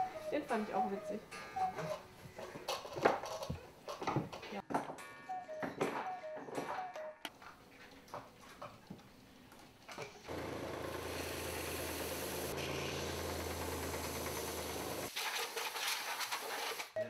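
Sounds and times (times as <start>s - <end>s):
belt sander motor hum: 10.3s - 15.1s.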